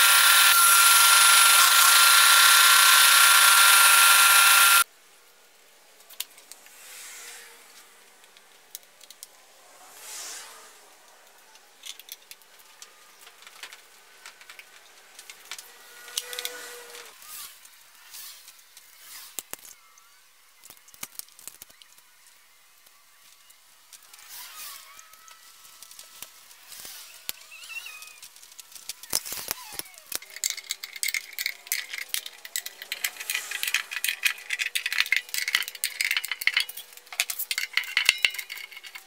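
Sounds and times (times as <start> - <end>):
table saw cutting: 0.0 - 4.8.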